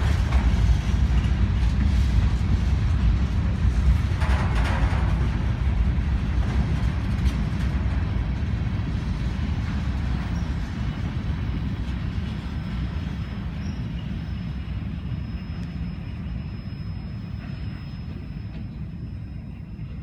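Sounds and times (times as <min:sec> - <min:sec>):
freight train wheels rumbling on rails: 0:00.0 - 0:20.0.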